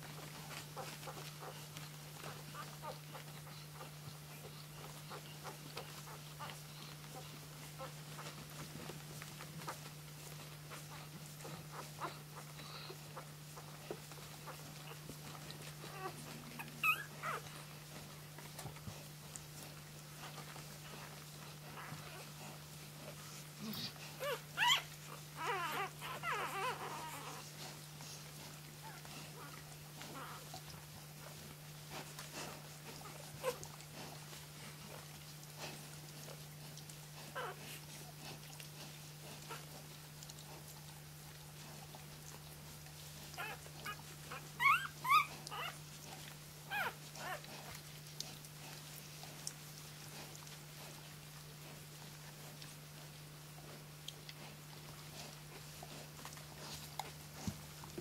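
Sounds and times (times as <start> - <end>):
puppy squealing and whimpering: 10.9 - 17.7, 23.8 - 27.5, 28.8 - 30.5, 33.1 - 33.7, 37.3 - 37.7, 43.3 - 47.8
puppy squeaking: 15.9 - 17.4, 24.2 - 27.4, 43.4 - 44.0, 44.6 - 45.8.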